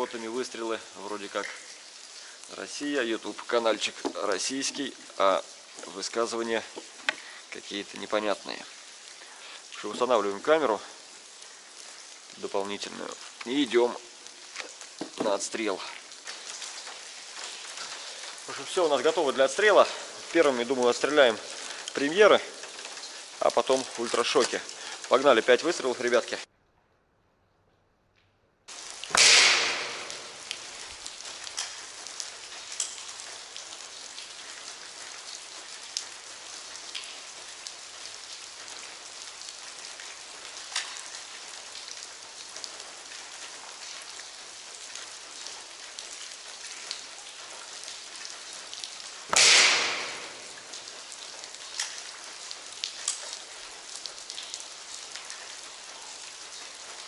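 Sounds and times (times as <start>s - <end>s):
steady hiss: 0.0s - 26.5s, 28.7s - 57.0s
air rifle shot crack: 29.1s - 30.4s, 49.3s - 50.6s.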